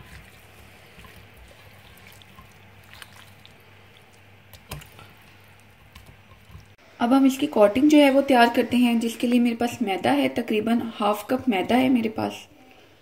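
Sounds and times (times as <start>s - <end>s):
wet squishing of meat kneaded: 0.0s - 6.8s.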